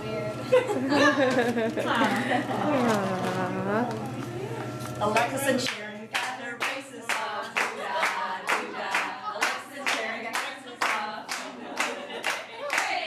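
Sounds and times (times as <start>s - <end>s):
voices: 1.0s - 13.0s
people clapping in rhythm: 5.6s - 13.0s.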